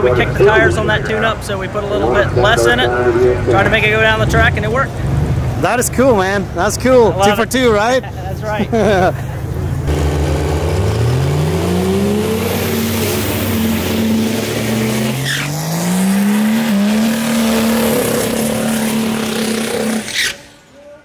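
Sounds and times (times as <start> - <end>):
diesel engine revving: 9.0 - 20.7
tyres spinning and squealing: 10.8 - 21.0.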